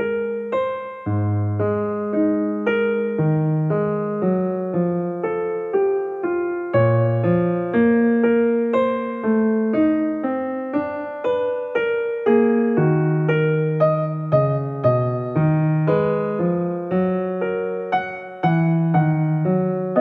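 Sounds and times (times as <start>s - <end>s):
piano bass notes: 0.0s - 20.0s
slow piano melody: 0.0s - 20.0s.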